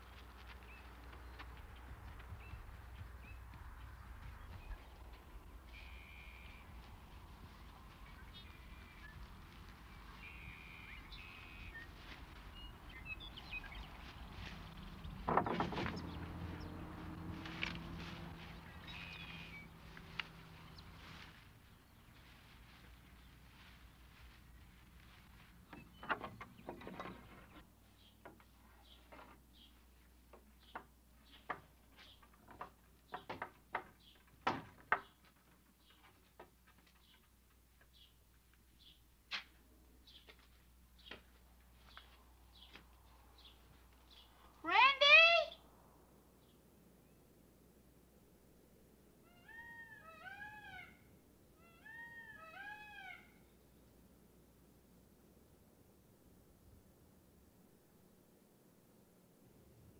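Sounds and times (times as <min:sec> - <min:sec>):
wooden barn door opening: 0:15.2 - 0:16.1, 0:25.8 - 0:27.6
high bird chirps: 0:18.6 - 0:19.7.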